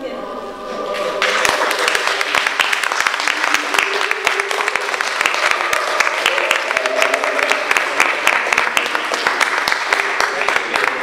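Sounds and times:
audience applauding: 0.9 - 11.0.

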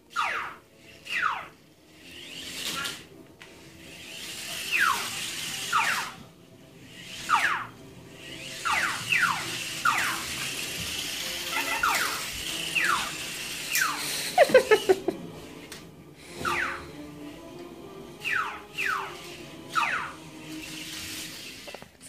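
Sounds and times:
parrot whistling squeals: 16.4 - 16.8.

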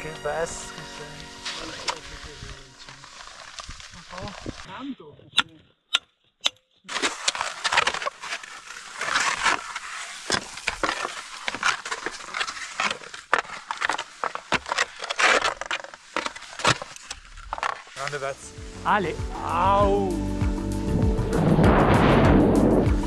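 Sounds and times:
skis scraping on snow: 0.0 - 4.7, 6.9 - 19.9.

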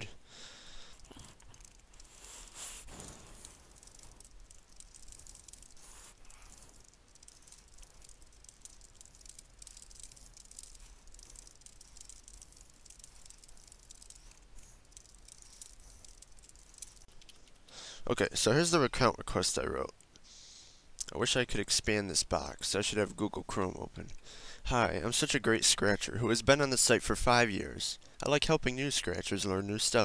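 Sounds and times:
fast typing on keyboard: 2.9 - 17.2.

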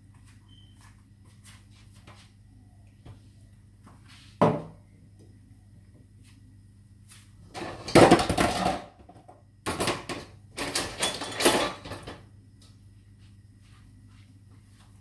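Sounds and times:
kitchenware clattering: 7.6 - 9.0, 9.7 - 12.2.

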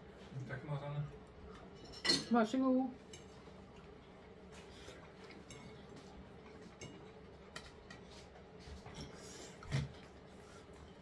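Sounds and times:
cutlery ticking against plates: 3.1 - 3.4, 5.2 - 8.0.

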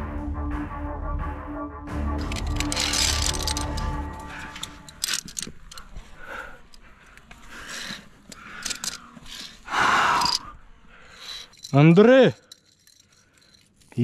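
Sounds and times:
climbing gear clicking and scraping: 2.2 - 14.0
person breathing hard: 3.1 - 11.7.

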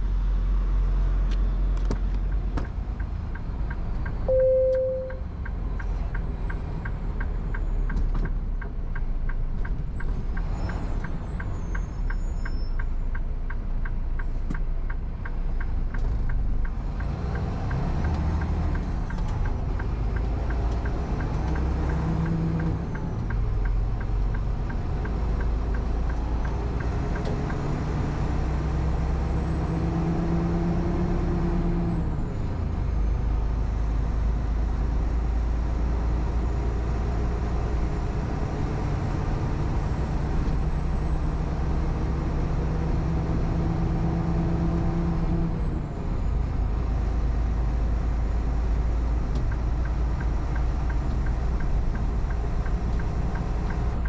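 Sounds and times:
truck diesel engine accelerating: 0.0 - 54.0
turn signal ticking: 1.3 - 30.4, 46.6 - 54.0.

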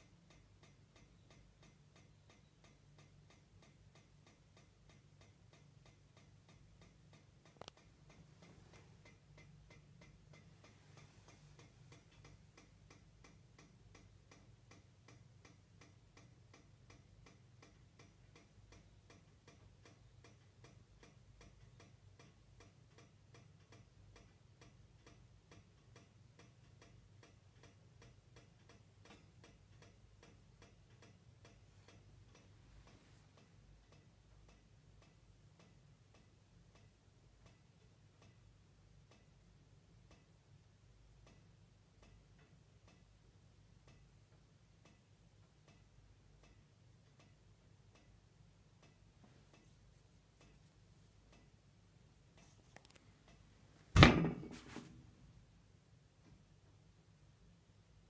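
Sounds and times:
radiator ticking: 0.0 - 54.4
low steady hum: 0.0 - 58.0
sharp click: 52.4 - 53.1.

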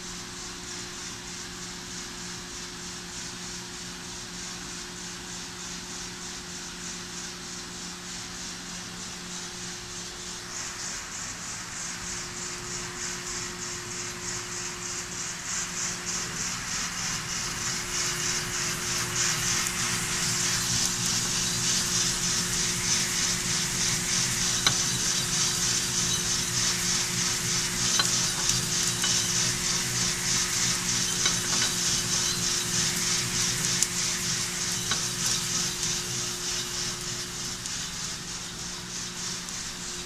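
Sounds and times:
beans tumbling in rotating drum: 9.0 - 40.0
machine hum: 10.0 - 40.0.

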